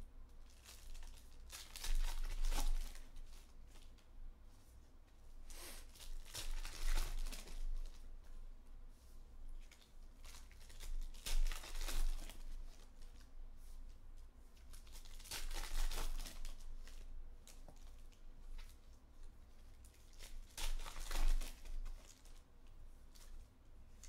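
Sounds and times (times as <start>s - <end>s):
card pack wrappers tearing and crinkling: 0.5s - 3.0s, 10.2s - 12.4s, 14.8s - 17.0s, 20.1s - 22.3s.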